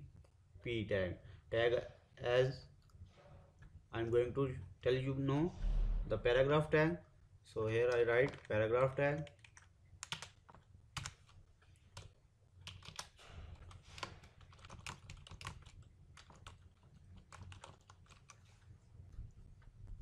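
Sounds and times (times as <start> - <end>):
low steady hum: 0.0 - 10.0
typing on computer keyboard: 7.9 - 8.5, 9.1 - 18.4.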